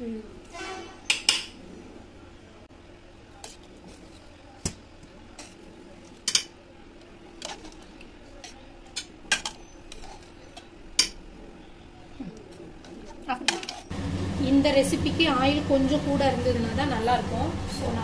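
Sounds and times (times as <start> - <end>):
metal spoon clinking on pots: 6.2 - 6.5, 8.4 - 11.2, 13.2 - 13.9.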